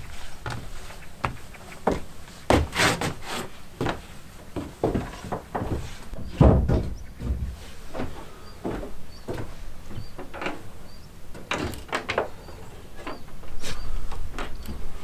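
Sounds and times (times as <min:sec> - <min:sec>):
heavy wooden door thump: 0:06.2 - 0:07.6.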